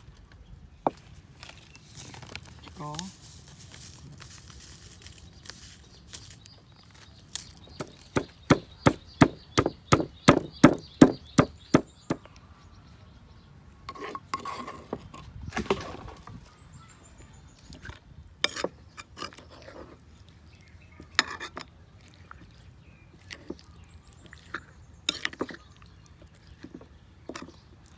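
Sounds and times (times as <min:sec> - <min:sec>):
wooden pestle pounding in mortar: 0:07.8 - 0:12.3.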